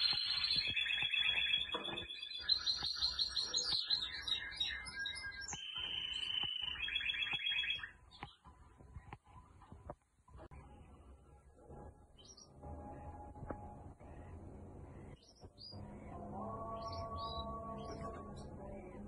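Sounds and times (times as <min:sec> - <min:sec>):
canary singing trills: 0:00.0 - 0:09.2, 0:13.9 - 0:19.0.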